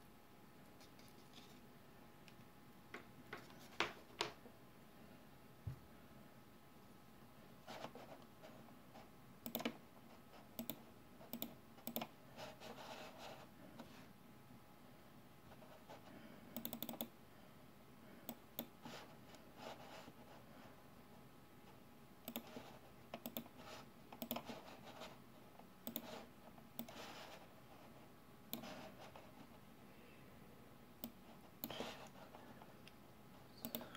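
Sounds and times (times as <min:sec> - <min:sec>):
computer mouse and key clicks: 0:09.4 - 0:09.8, 0:10.5 - 0:12.7, 0:16.6 - 0:17.2, 0:18.3 - 0:18.8, 0:22.2 - 0:25.1, 0:25.8 - 0:27.4, 0:28.5 - 0:29.2, 0:31.0 - 0:32.2, 0:33.6 - 0:33.9.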